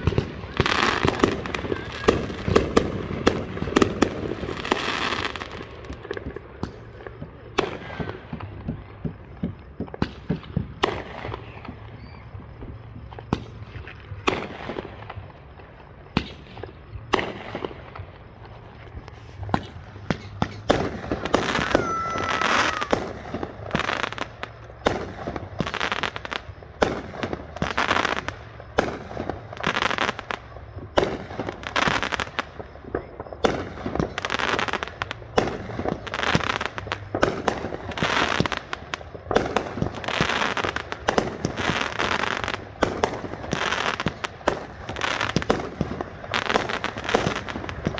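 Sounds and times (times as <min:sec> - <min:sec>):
firework whistle: 0:00.0 - 0:06.9, 0:09.2 - 0:15.2, 0:16.1 - 0:28.3
fireworks bangs: 0:00.0 - 0:47.9
fireworks crackling: 0:00.0 - 0:47.9.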